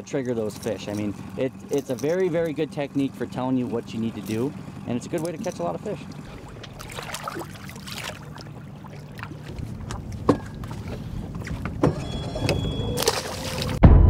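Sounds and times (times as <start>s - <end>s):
boat motor hum: 0.0s - 14.0s
water noise: 1.0s - 13.8s
knocks and splashes: 4.4s - 12.0s, 13.0s - 13.9s.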